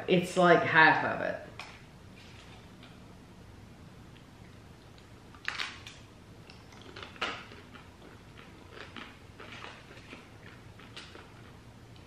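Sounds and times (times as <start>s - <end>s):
crackling chewing: 4.2s - 12.0s.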